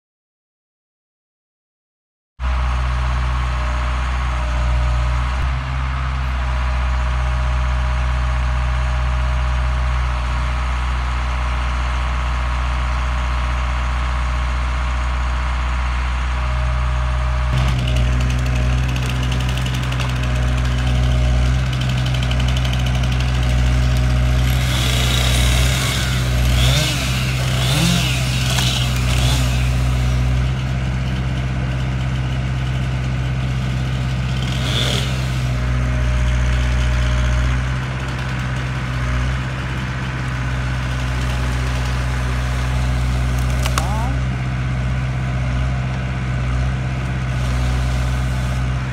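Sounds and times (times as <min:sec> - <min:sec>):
crane engine running: 0:02.4 - 0:48.9
saw cutting through trunk: 0:12.2 - 0:48.9.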